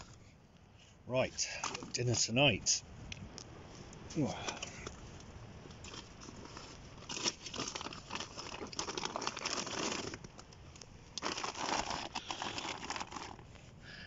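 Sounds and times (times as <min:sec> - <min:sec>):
plastic bags crinkling: 0:05.8 - 0:13.5.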